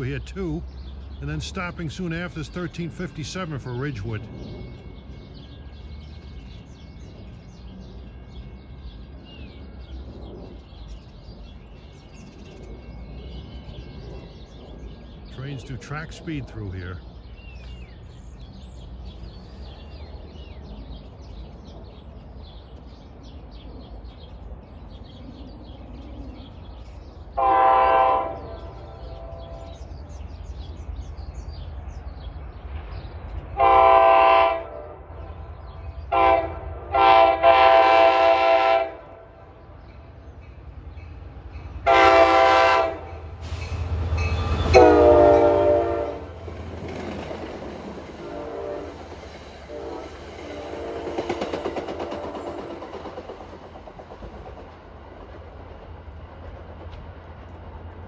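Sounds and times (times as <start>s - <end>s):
passing train rumble: 0.0s - 58.0s
train horn blasts: 27.4s - 29.8s, 33.6s - 35.4s, 36.1s - 39.3s, 41.8s - 46.4s, 48.2s - 49.0s, 49.7s - 51.3s.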